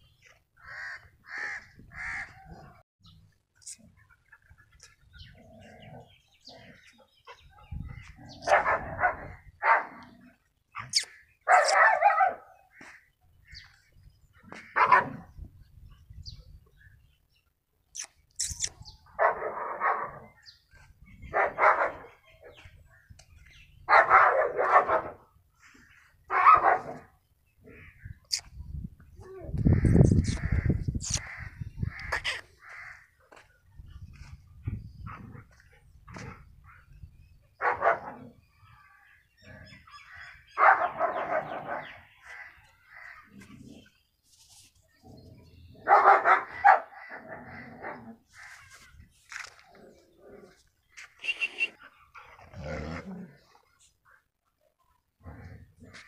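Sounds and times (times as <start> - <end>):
dog barking: 8.4 - 10.0, 11.5 - 12.5, 14.8 - 15.2, 19.2 - 20.3, 21.3 - 22.1, 23.9 - 25.2, 26.3 - 27.1, 37.6 - 38.3, 40.6 - 42.0, 45.8 - 47.0.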